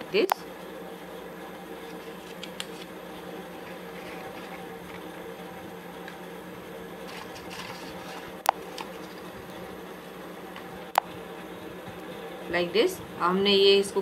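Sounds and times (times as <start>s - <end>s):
background hum: 0.0s - 14.0s
paper rustling and tapping: 1.8s - 2.9s, 7.1s - 9.3s.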